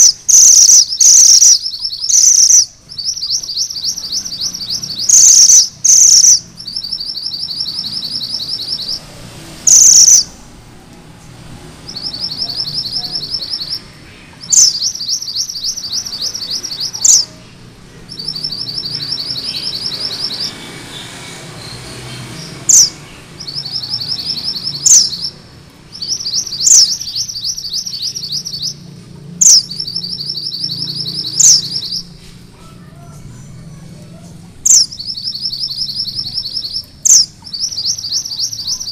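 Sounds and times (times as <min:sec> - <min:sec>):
loud harsh bird bursts: 0:00.0 - 0:10.6
bird singing rolling trill: 0:00.0 - 0:38.9.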